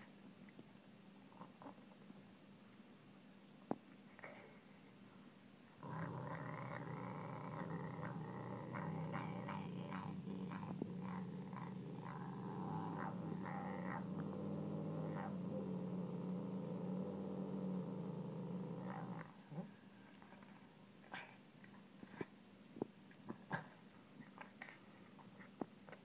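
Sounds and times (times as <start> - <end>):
cat growling low: 5.8 - 20.5.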